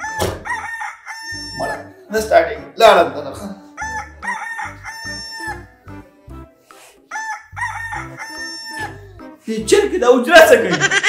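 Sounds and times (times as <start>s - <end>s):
rooster crowing: 0.0s - 1.8s, 3.8s - 5.8s, 7.1s - 9.1s.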